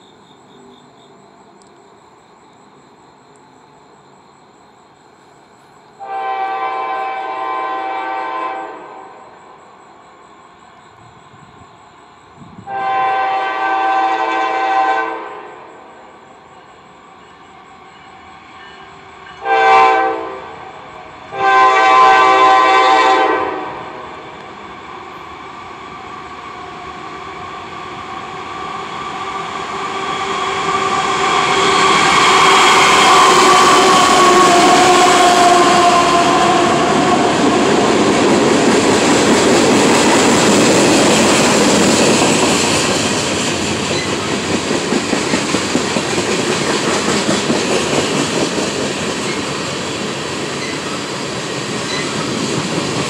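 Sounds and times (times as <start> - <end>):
locomotive horn blasts: 6.0 - 9.2, 12.7 - 15.5, 19.4 - 20.6, 21.3 - 24.0
train wheels rolling: 24.0 - 53.0.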